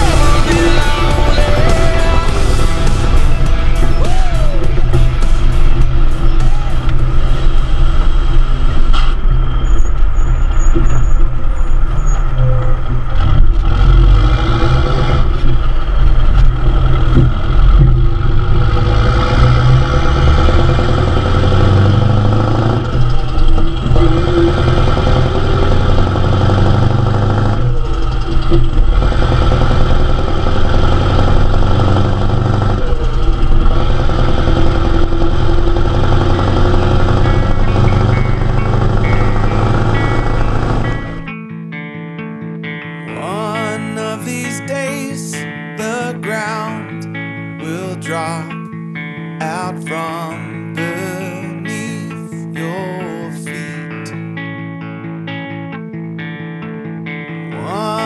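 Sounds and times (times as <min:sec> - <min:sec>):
diesel engine running: 0:00.0 - 0:41.4.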